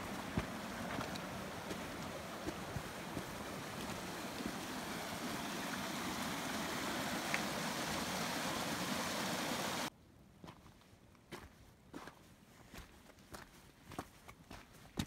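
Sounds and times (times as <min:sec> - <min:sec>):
stream rushing over ice and stones: 0:00.0 - 0:09.9.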